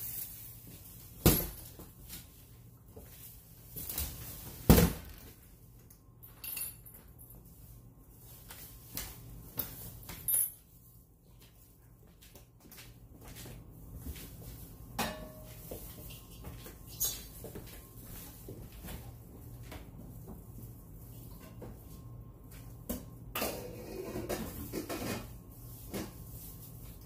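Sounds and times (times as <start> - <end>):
dishes and pots clinking: 15.0 - 15.6, 23.3 - 26.1.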